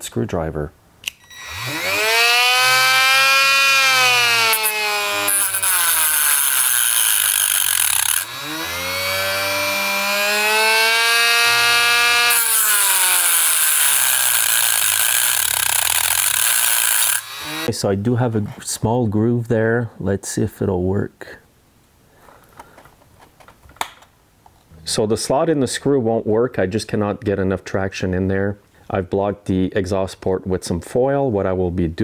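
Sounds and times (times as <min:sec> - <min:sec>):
rotary tool whining and grinding: 0:01.1 - 0:17.7.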